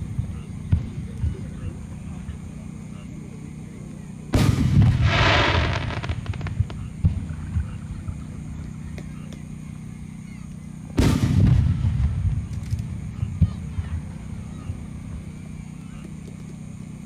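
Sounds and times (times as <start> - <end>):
firework booms: 4.3 - 8.2, 11.0 - 14.2
sizzling crackle: 4.4 - 7.4.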